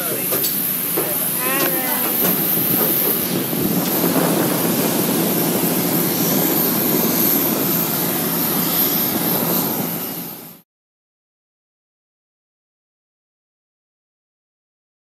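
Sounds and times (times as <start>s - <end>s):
jet turbine whine and rush: 0.0s - 10.6s.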